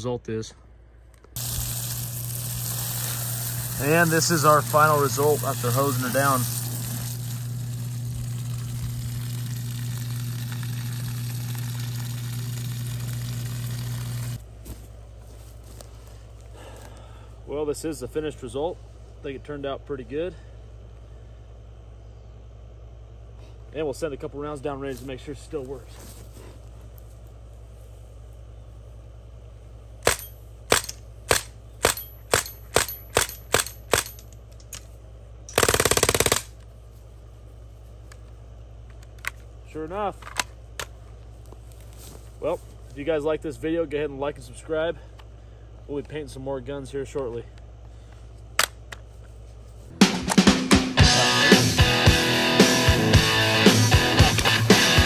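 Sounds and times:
low hum: 0:00.5 - 0:55.0
hose water splashing on ground: 0:01.4 - 0:14.4
bb rifle full-auto burst: 0:35.5 - 0:36.6.

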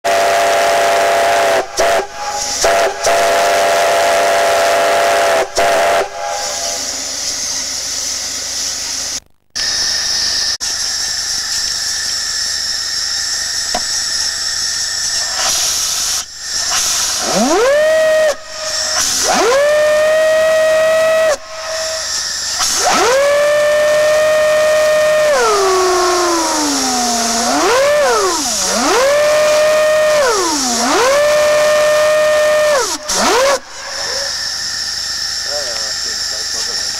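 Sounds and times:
single-note steam whistle: 0:00.1 - 0:07.3
chord steam whistle blasts: 0:00.1 - 0:07.6, 0:16.7 - 0:34.5
steam hissing: 0:00.1 - 0:36.9.

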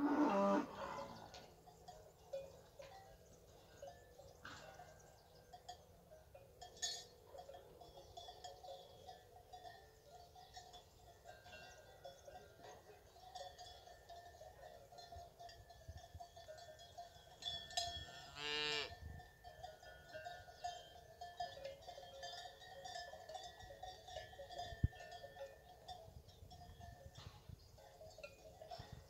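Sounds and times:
cow mooing: 0:00.0 - 0:01.4, 0:18.1 - 0:18.9.

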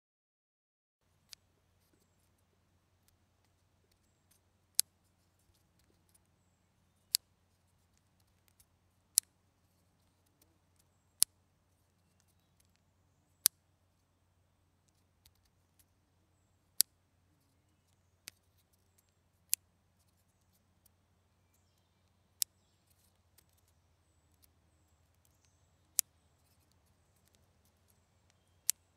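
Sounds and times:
faint handling ticks: 0:01.1 - 0:14.1, 0:14.8 - 0:28.9.

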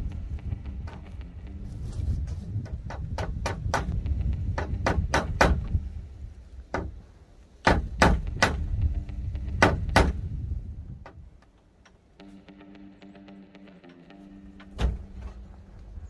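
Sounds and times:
wind rumble on microphone: 0:00.0 - 0:07.0, 0:07.7 - 0:11.4.

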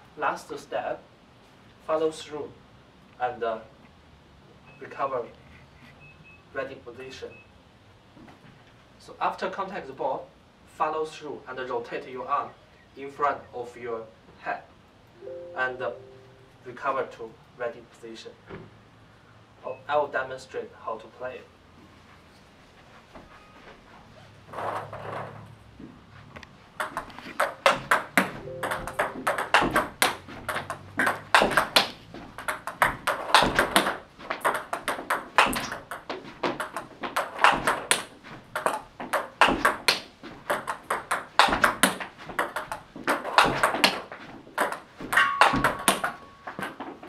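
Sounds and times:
ball bouncing on table: 0:26.8 - 0:46.7
table tennis ball hitting paddles: 0:26.8 - 0:47.0.

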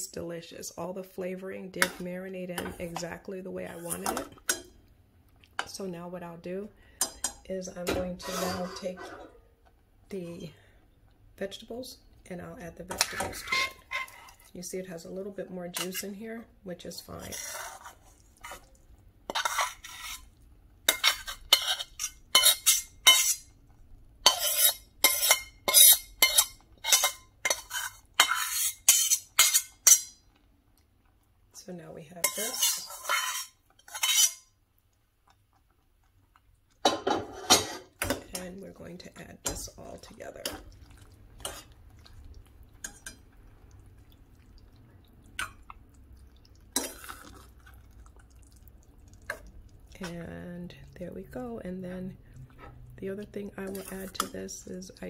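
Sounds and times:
metal spoon scraping pan: 0:01.7 - 0:04.7, 0:07.0 - 0:09.4, 0:12.9 - 0:14.4, 0:15.7 - 0:16.2, 0:17.0 - 0:20.3, 0:20.9 - 0:23.5, 0:24.2 - 0:30.2, 0:32.1 - 0:34.5, 0:36.8 - 0:38.6, 0:41.4 - 0:41.8, 0:53.6 - 0:54.6
spoon stirring thick mixture: 0:12.6 - 0:55.0.

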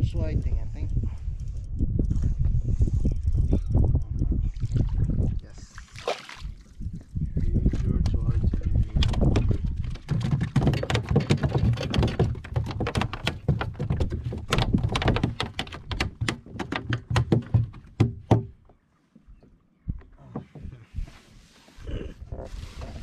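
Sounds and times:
gear knocking against plastic kayak: 0:08.6 - 0:18.6.

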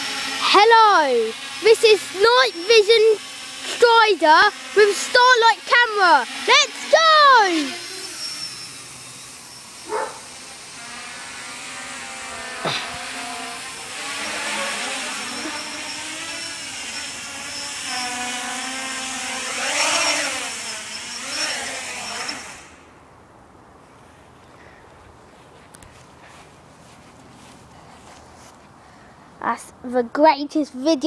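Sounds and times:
drone propellers whining: 0:00.0 - 0:23.1.

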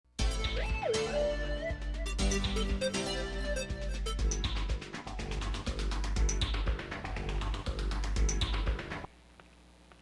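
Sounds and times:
tv theme music with bass beat: 0:00.2 - 0:09.1.

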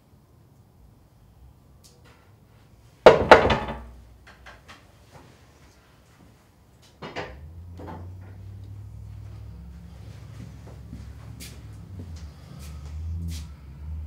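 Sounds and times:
loud ringing knocks: 0:03.1 - 0:03.9.

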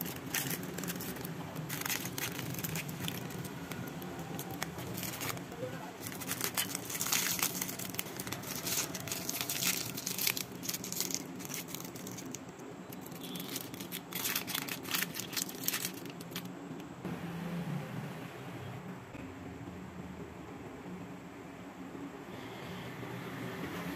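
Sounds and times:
plastic wrapper crinkling: 0:00.0 - 0:16.5.

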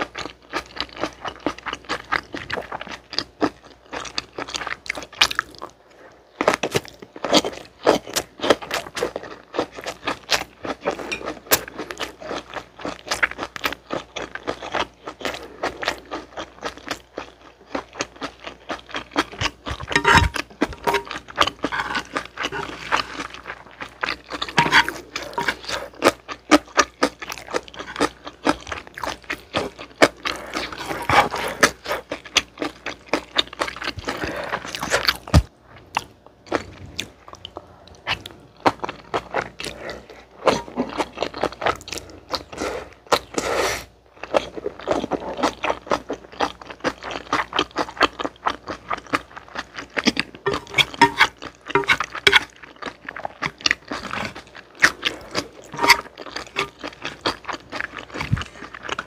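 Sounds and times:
slurping and chewing noodles: 0:00.0 - 0:59.0
chopsticks stirring noodles in pan: 0:19.9 - 0:21.1, 0:21.7 - 0:23.2, 0:24.5 - 0:25.9, 0:50.4 - 0:52.5, 0:55.7 - 0:56.8.

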